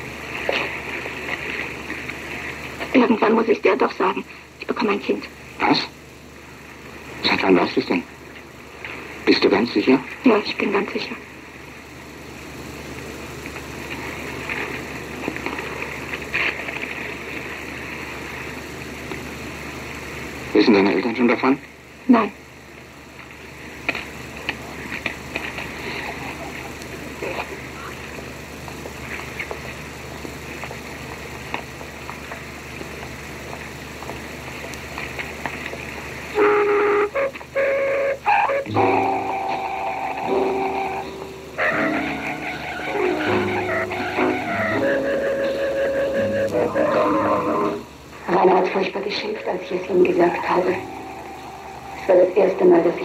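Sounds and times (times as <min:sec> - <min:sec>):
film crackles: 0:00.0 - 0:03.0, 0:12.6 - 0:20.5, 0:22.8 - 0:36.5
optical soundtrack hiss and hum: 0:00.0 - 0:53.0
music of held notes: 0:36.3 - 0:47.9.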